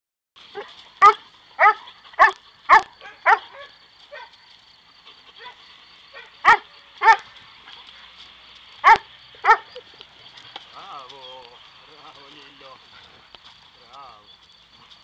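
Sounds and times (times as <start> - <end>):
puppy barking excitedly: 0.5 - 4.3, 6.2 - 7.3, 8.8 - 9.8.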